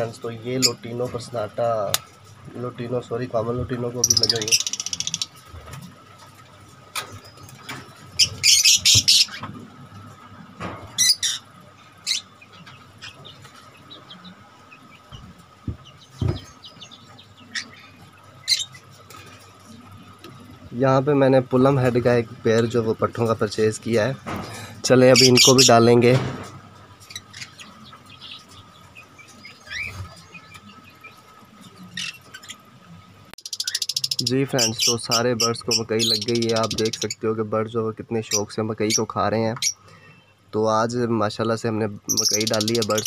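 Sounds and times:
birds scuffling in wire cages: 0.0 - 37.2
parrots chirping: 4.0 - 5.5, 7.2 - 9.5, 10.9 - 20.2, 25.1 - 25.9, 26.8 - 37.2, 42.1 - 43.0
dull knocks: 15.1 - 16.5.

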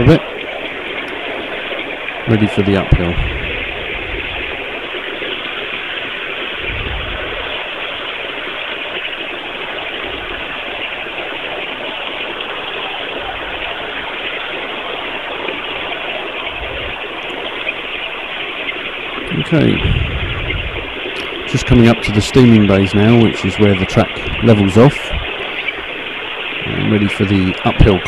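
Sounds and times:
low thumps: 19.3 - 21.6.

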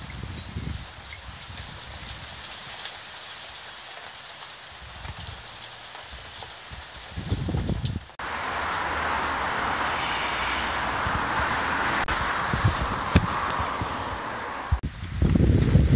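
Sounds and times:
steady rain falling: 0.0 - 15.9
low rumble: 8.2 - 14.8.

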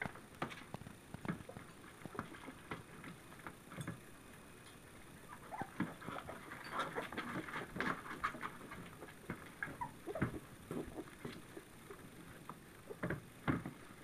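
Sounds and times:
puppies smacking and slurping food: 0.0 - 4.0, 5.4 - 14.0
puppies squeaking: 5.2 - 12.1.

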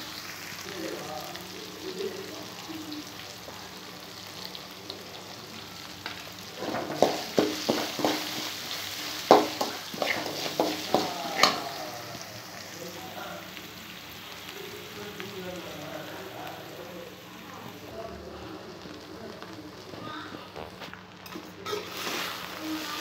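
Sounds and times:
food sizzling in oil: 0.0 - 23.0.

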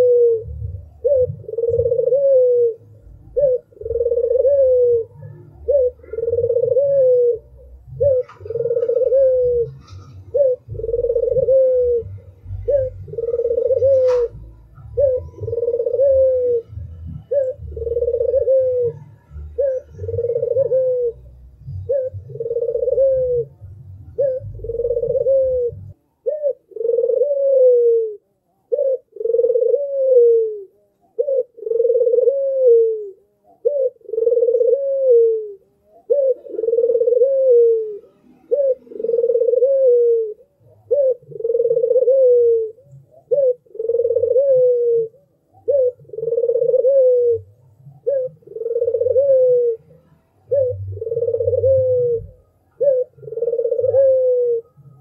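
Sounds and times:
dove cooing: 0.0 - 55.0.

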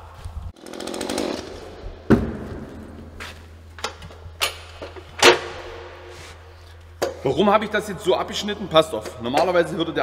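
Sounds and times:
objects knocking and thumping: 2.1 - 3.1.

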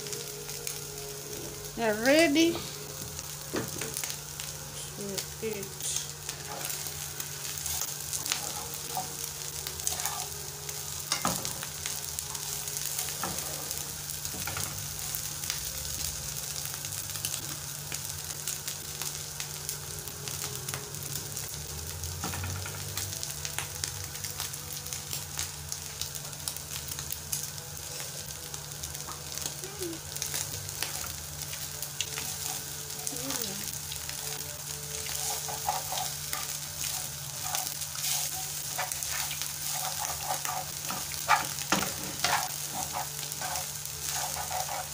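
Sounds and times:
fish sizzling in oil: 0.0 - 44.9
metal spoon scraping pan: 35.1 - 36.2, 36.9 - 44.9.

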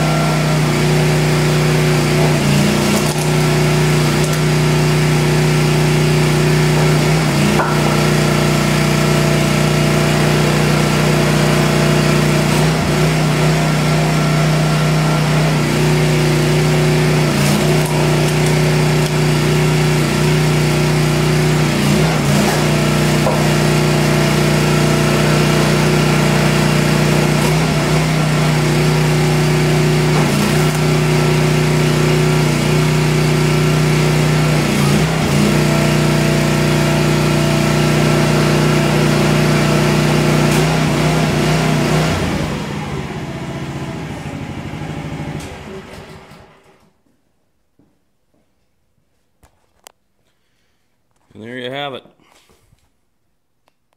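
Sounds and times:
log splitter engine running: 0.0 - 46.8
wood cracking: 2.1 - 4.7, 17.3 - 19.6.

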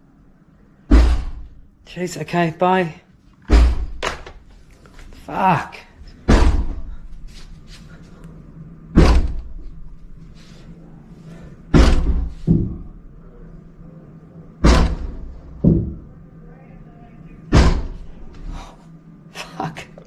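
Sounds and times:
heavy thuds of punches on wall: 0.9 - 1.5, 3.5 - 4.0, 6.3 - 6.9, 9.0 - 9.5, 11.7 - 12.8, 14.6 - 16.0, 17.5 - 18.0.

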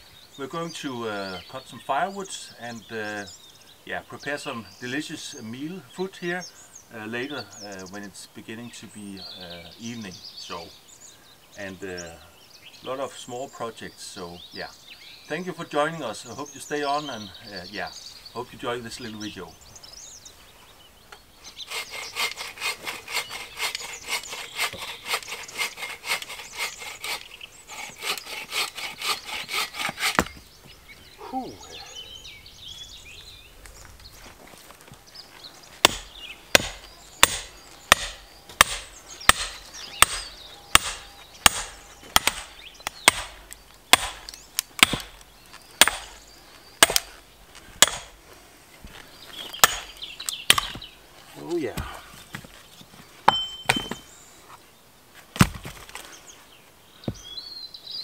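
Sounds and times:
hand saw rasping through log: 21.6 - 30.3, 35.8 - 45.2, 45.8 - 46.2, 46.8 - 47.1, 47.8 - 48.2, 49.6 - 50.8
sharp knocks of log splitting: 29.8 - 30.5, 35.8 - 45.2, 45.8 - 46.2, 46.8 - 47.1, 47.8 - 48.2, 49.6 - 50.9, 55.3 - 56.0.

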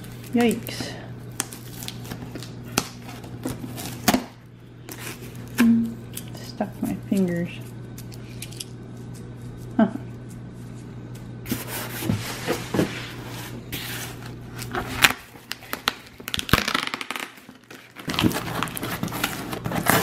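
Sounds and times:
cardboard flaps scraping and crackling: 17.7 - 20.0.

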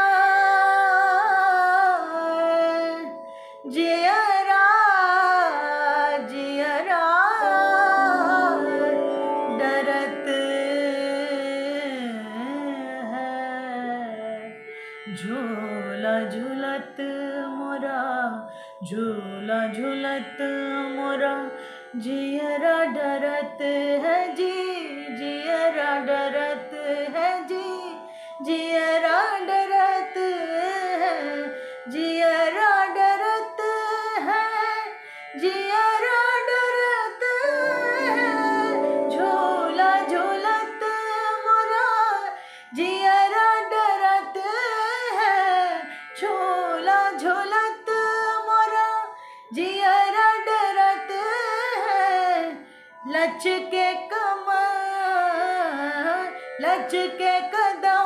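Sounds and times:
woman singing: 0.0 - 58.0
drone held tones: 7.4 - 11.7, 37.4 - 41.8.

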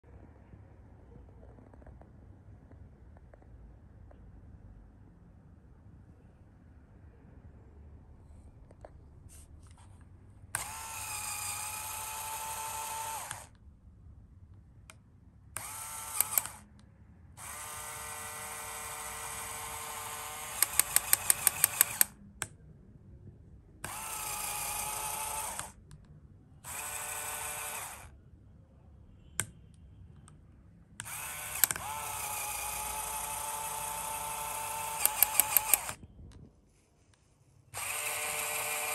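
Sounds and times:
small electric motor whirring: 10.6 - 13.6, 15.6 - 16.7, 17.4 - 22.1, 23.8 - 25.8, 26.6 - 28.1, 31.0 - 36.0, 37.8 - 38.9.

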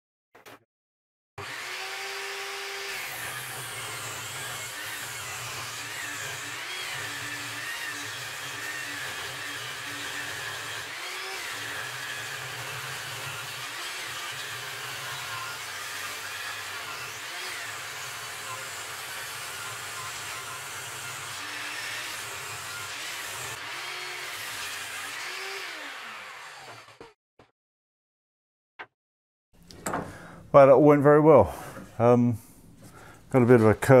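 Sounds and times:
table saw ripping wood: 1.4 - 27.2.

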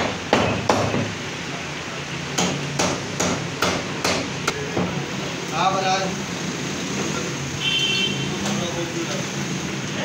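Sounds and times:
meat cleaver chopping on wood: 0.0 - 1.1, 2.4 - 4.6.

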